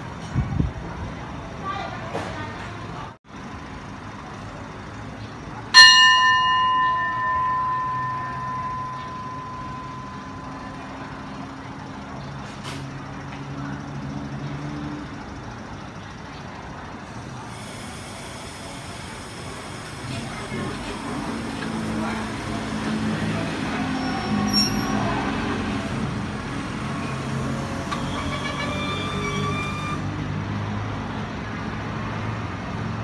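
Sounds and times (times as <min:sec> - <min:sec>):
metal bell ringing: 0:05.8 - 0:11.6.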